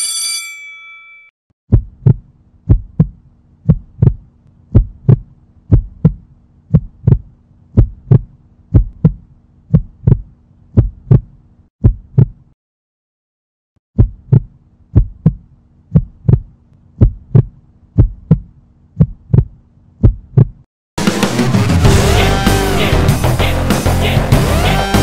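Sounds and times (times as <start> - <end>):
steady low hum: 1.7 - 11.7, 14.0 - 20.6
heartbeat thumps: 1.7 - 12.4, 14.0 - 20.7.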